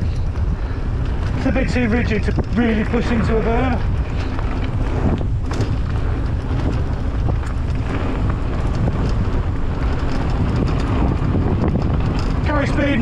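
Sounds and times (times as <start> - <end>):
bike clicks and rattles: 0.0 - 13.0
tyres rumbling over dirt trail: 0.0 - 13.0
wind buffeting microphone: 0.0 - 13.0.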